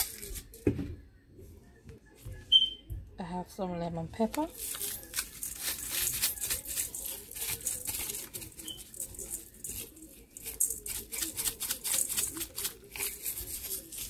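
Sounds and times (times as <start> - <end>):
spice shaker rattling: 4.5 - 14.0.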